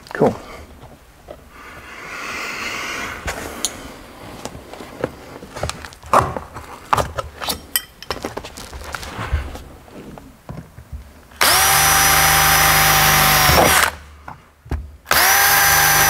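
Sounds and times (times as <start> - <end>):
metal clicks and clinks: 7.6 - 8.2.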